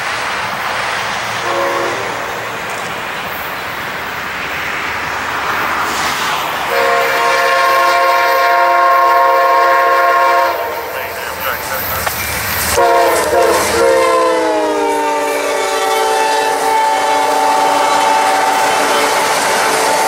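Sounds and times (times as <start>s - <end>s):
diesel train passing: 0.0s - 20.0s
train horn chord: 1.4s - 2.3s, 6.7s - 11.7s, 12.8s - 20.0s.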